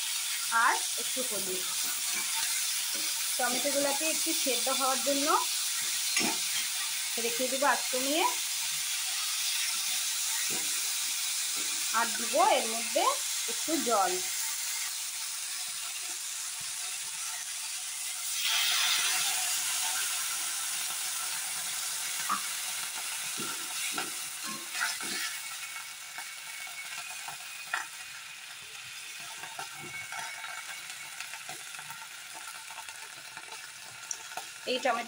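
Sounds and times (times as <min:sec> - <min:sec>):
sizzling and bubbling oil: 0:00.0 - 0:35.0
metal spatula scraping a pan: 0:01.2 - 0:12.9, 0:18.2 - 0:28.0, 0:29.2 - 0:32.0.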